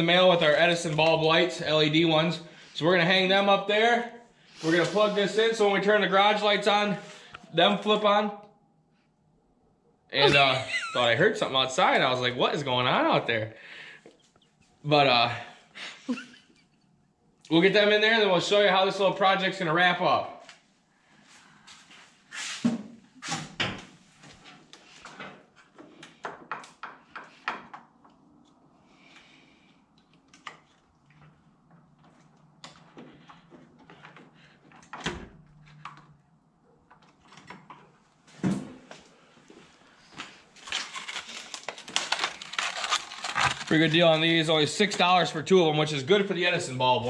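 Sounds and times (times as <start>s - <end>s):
plastic packaging crinkling: 40.5s - 44.5s.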